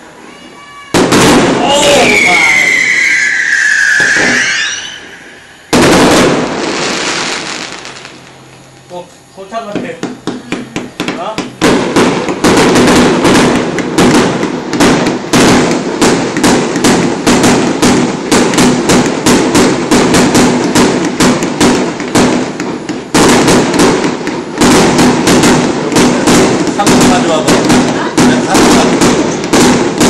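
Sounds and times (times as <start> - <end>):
fireworks bursting: 0.0 - 30.0.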